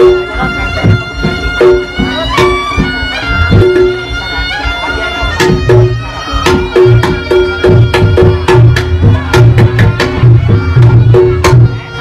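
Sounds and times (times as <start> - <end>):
drum strokes: 0.0 - 12.0.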